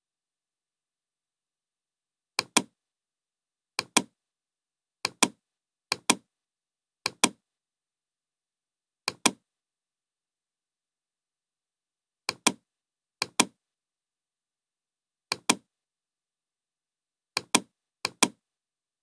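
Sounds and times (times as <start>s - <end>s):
computer mouse button clicks: 2.4s - 2.7s, 3.8s - 4.1s, 5.0s - 6.2s, 7.1s - 7.4s, 9.1s - 9.4s, 12.3s - 12.6s, 13.2s - 13.6s, 15.3s - 15.6s, 17.4s - 18.4s.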